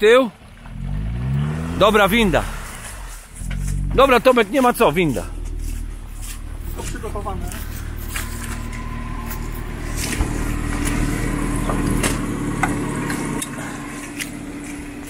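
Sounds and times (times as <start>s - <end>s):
car engine running: 0.3s - 15.0s.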